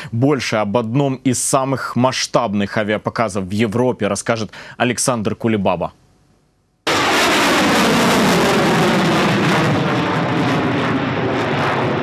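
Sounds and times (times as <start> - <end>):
jet engines roaring: 6.9 - 12.0.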